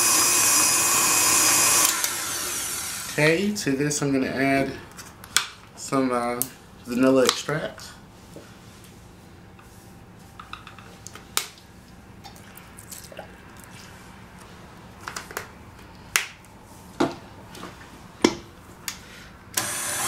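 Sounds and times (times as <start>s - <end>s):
stand mixer running: 19.6s - 20.0s.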